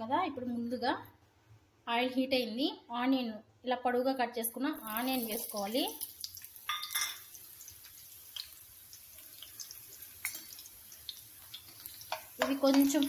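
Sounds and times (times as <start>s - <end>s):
onion sizzling in hot oil: 4.8s - 13.0s.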